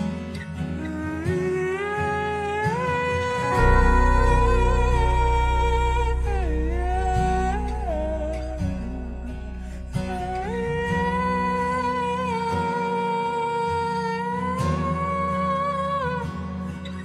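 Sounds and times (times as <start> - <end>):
guitar accompaniment: 0.0 - 17.0
held vocal note: 1.3 - 12.0.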